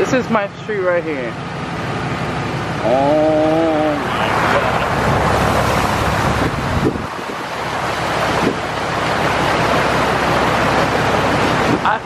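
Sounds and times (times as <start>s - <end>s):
wind gusting across microphone: 4.0s - 12.0s.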